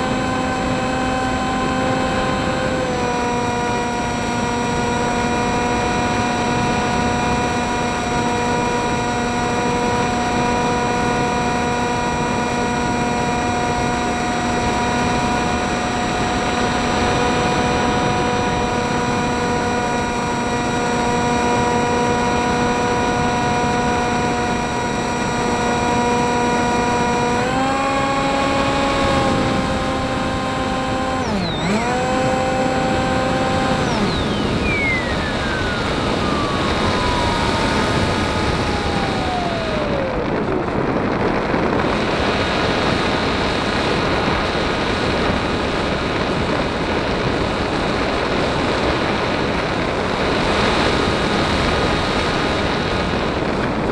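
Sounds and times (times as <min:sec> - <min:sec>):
model plane motor whining: 0:00.0 - 0:53.9
wind rushing: 0:26.2 - 0:53.9.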